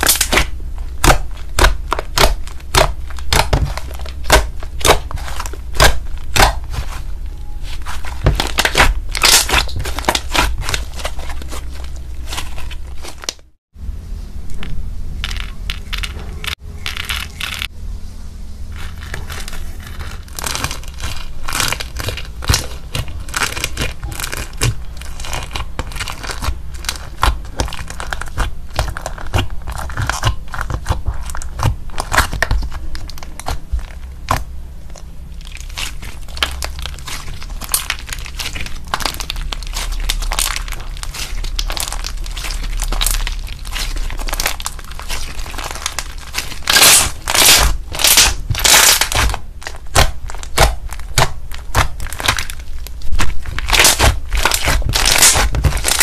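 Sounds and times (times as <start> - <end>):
slime sticky clicks and crackles: 20.4 - 56.0.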